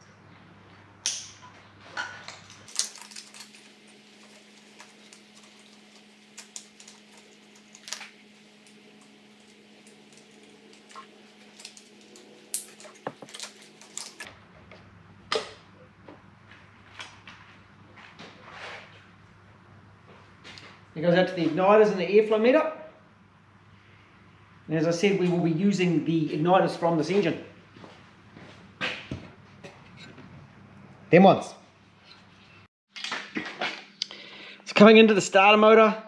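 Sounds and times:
faint steady hum: 0.0s - 28.7s.

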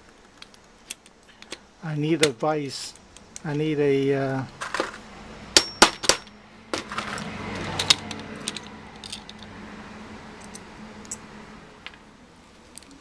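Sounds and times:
tools clicking and clinking: 0.2s - 3.7s, 5.6s - 9.5s, 10.4s - 11.2s, 12.7s - 13.0s.

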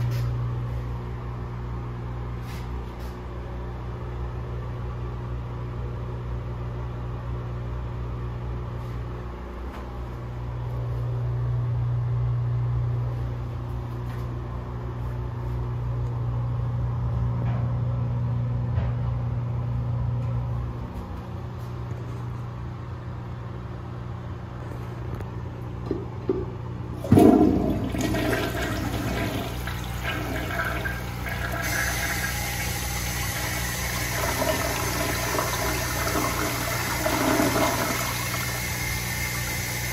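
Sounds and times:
toilet flushing: 27.0s - 39.9s
toilet tank refilling hiss: 27.0s - 39.9s.

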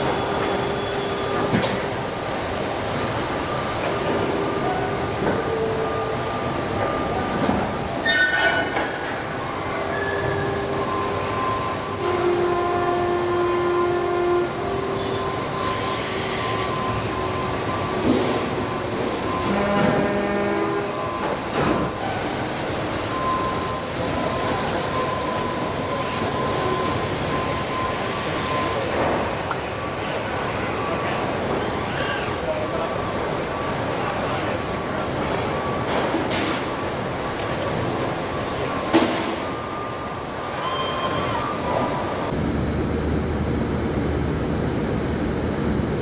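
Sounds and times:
assembly line machinery noise: 0.0s - 44.4s
high squeal: 8.0s - 12.1s, 14.8s - 20.0s, 23.1s - 32.6s, 38.6s - 42.3s
steady mechanical hum: 42.0s - 46.0s.

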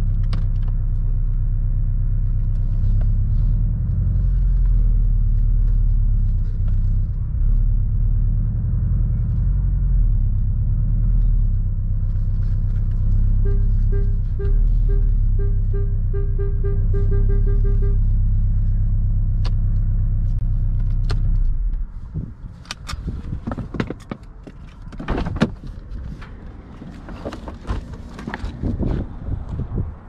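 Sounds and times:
car engine low rumble: 0.0s - 30.0s
parking sensor beeping: 13.3s - 18.2s.

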